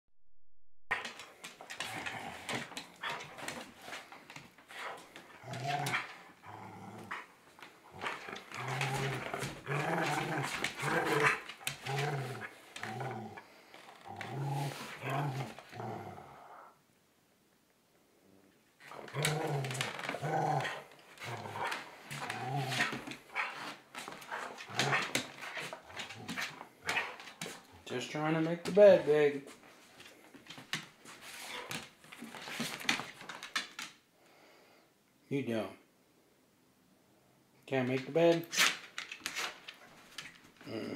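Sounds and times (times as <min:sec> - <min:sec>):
dog growling: 0:00.9 - 0:04.0, 0:04.8 - 0:16.8, 0:18.8 - 0:27.8, 0:40.6 - 0:40.9.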